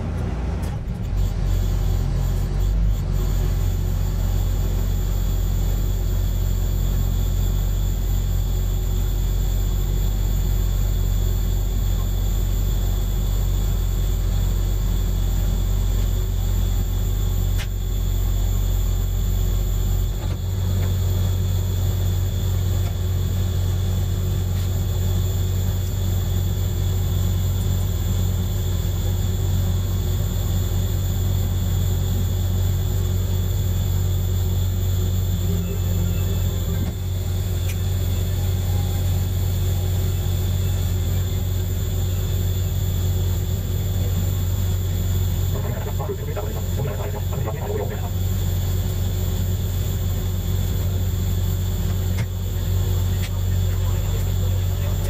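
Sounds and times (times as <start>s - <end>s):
diesel engine idling: 29.1s - 55.0s.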